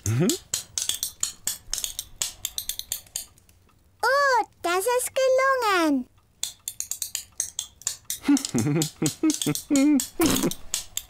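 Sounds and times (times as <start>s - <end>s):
spluttering raspberry: 0.0s - 0.4s, 8.2s - 10.6s
child warbling voiced sounds: 4.0s - 6.1s.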